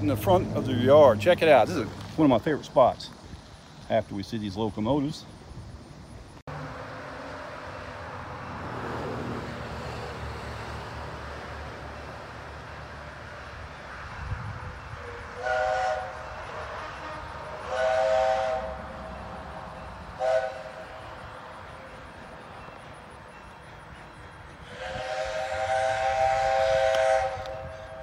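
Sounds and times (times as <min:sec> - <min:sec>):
steam whistle blasts: 0:14.9 - 0:19.4, 0:20.2 - 0:21.3, 0:24.6 - 0:28.0.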